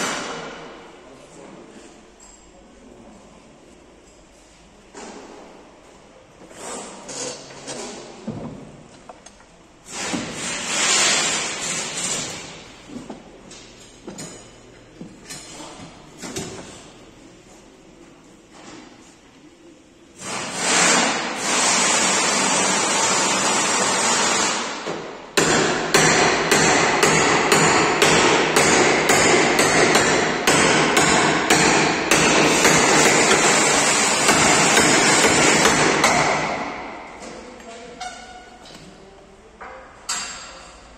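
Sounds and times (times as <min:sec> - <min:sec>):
loud steady noise: 0:20.2 - 0:37.1.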